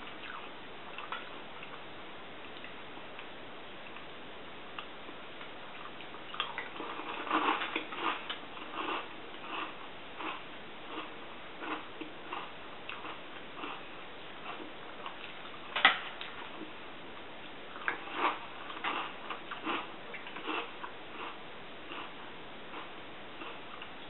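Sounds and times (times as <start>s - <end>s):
person chewing cereal: 4.8s - 16.8s, 17.4s - 24.0s.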